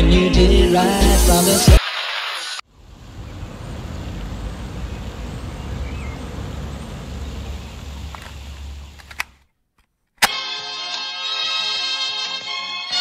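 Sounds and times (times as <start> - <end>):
city traffic rumble: 2.7 - 9.4.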